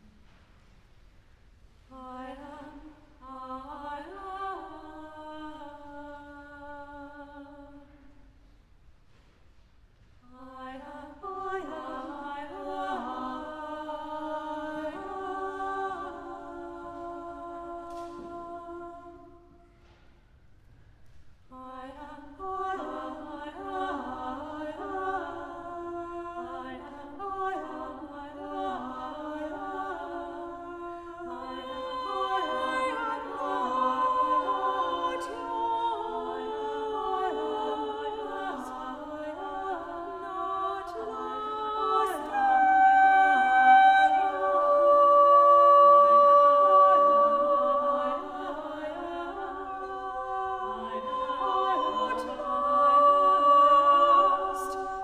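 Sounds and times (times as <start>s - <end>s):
mixed choir singing unaccompanied: 2.0s - 7.9s, 10.4s - 19.9s, 21.5s - 55.0s.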